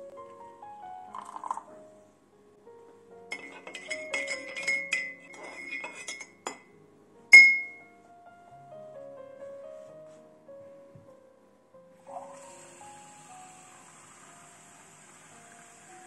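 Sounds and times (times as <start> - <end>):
soft background music: 0.0 - 16.0
spoon clinking in ceramic cup: 3.3 - 6.7, 7.3 - 7.8.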